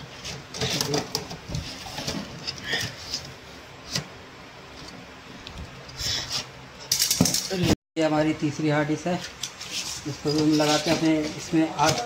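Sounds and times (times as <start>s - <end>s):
drive caddy scraping: 9.6s - 12.0s.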